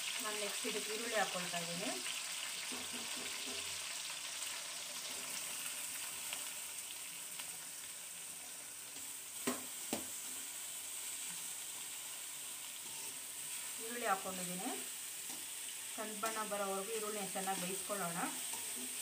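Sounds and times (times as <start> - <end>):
oil sizzling in a pan: 0.0 - 19.0
onions tipped in and stirred: 11.2 - 19.0.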